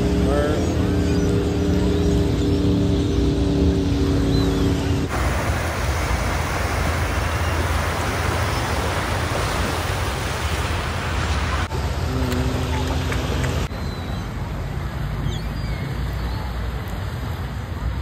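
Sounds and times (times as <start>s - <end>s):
wind: 0.0s - 18.0s
small waves on shore: 3.5s - 18.0s.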